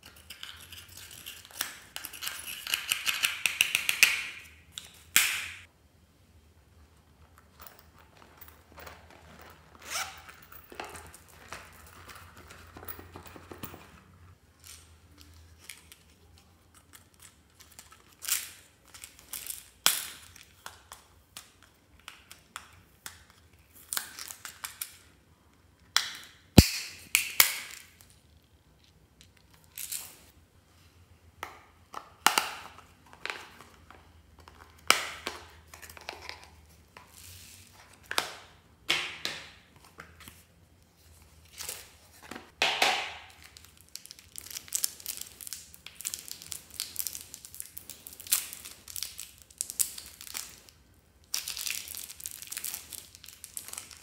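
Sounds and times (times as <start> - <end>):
plastic wrappers crinkling and tearing: 43.3 - 54.0.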